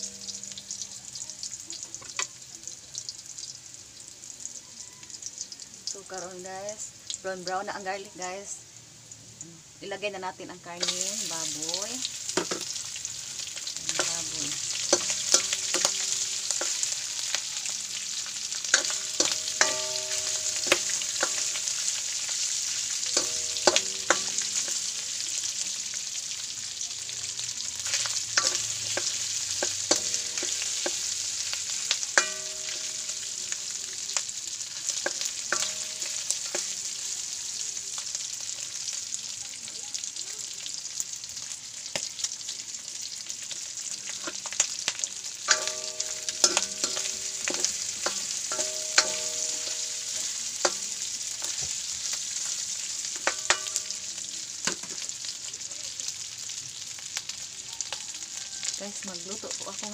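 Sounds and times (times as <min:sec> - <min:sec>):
food sizzling in a wok: 0:00.0 - 0:59.9
metal spatula knocking a pan: 0:12.4 - 0:12.8, 0:13.9 - 0:17.3, 0:18.7 - 0:25.2, 0:27.8 - 0:31.5, 0:32.1 - 0:33.8, 0:35.0 - 0:36.8, 0:45.5 - 0:51.8, 0:53.2 - 0:55.0.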